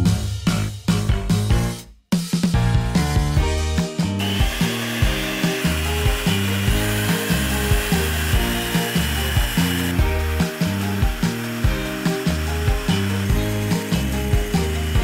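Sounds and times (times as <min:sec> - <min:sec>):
background music: 0:00.0 - 0:15.0
electric hand mixer whirring: 0:03.8 - 0:15.0.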